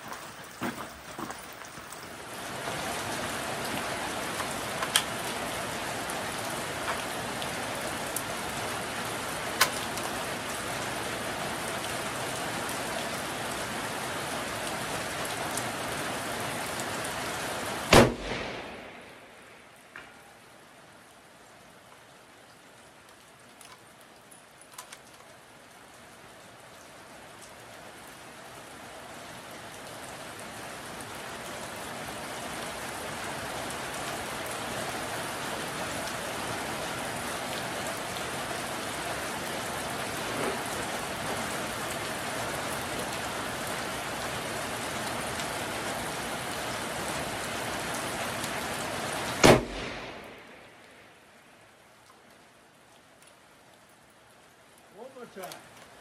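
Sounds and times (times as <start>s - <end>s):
rain hiss: 0.0s - 56.0s
rifle shot: 17.9s - 19.5s, 49.4s - 51.0s.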